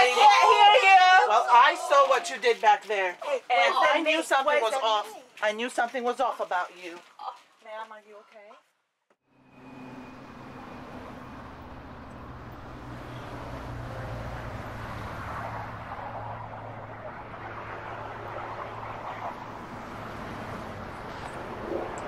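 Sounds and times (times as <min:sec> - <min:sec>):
road noise: 0:09.2 - 0:22.0
vehicle engine running: 0:09.3 - 0:22.0.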